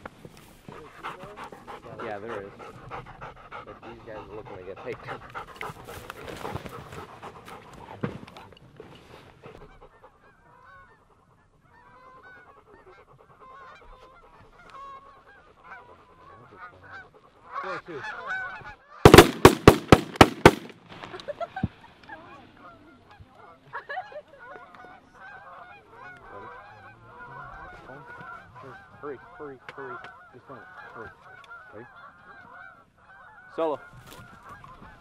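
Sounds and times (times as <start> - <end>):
geese honking: 9.8 - 20.6, 24.4 - 35.0
shotgun shots: 19.1 - 20.8.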